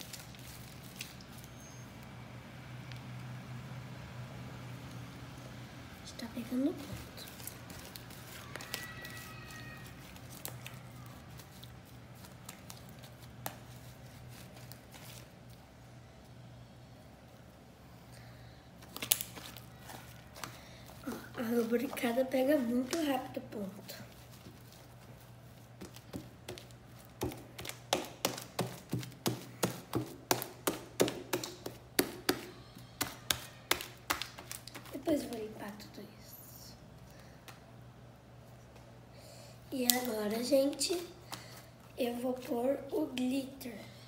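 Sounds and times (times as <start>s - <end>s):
slime squishing: 6.4s - 15.6s
hand slapping sticky slime: 25.8s - 34.9s.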